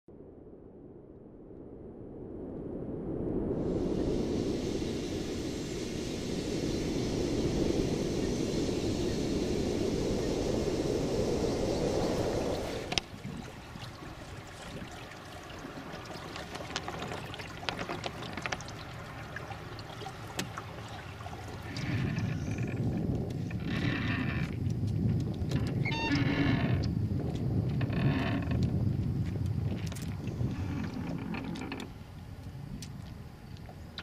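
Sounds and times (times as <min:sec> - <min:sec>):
steady rushing noise: 0:00.1 - 0:24.9
water lapping against a hull: 0:12.2 - 0:28.8, 0:29.5 - 0:33.1.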